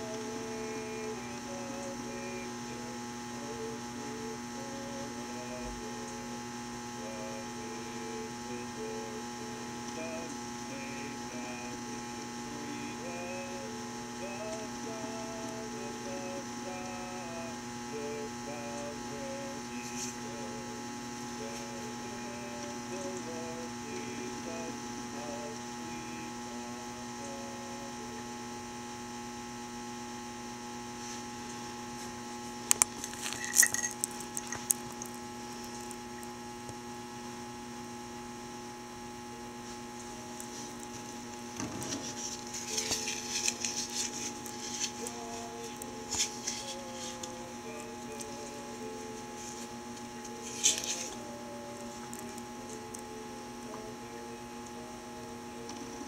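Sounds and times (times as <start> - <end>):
electrical hum: 0.0 - 56.0
rustling: 39.6 - 47.4.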